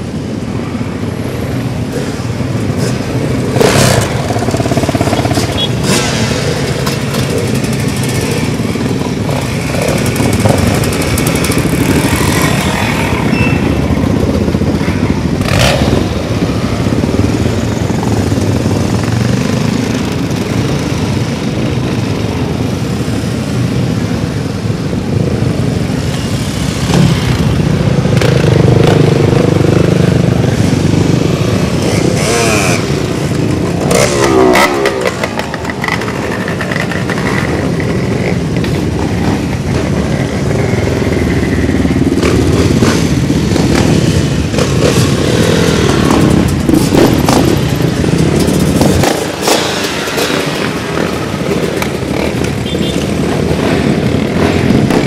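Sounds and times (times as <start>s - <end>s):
motorcycles riding past: 0.0s - 55.0s
motorcycle engine blips: 6.8s - 19.4s.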